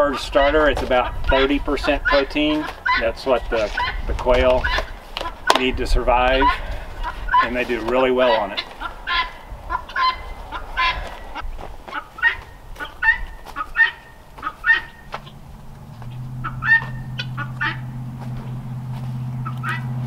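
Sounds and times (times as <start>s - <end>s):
fowl calling: 0.0s - 20.0s
low steady hum: 14.0s - 20.0s.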